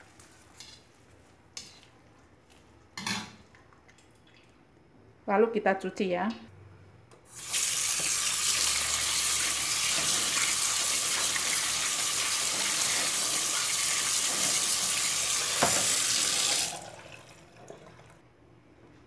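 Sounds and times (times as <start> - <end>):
tap water splashing into sink: 7.5 - 8.8, 14.0 - 18.1.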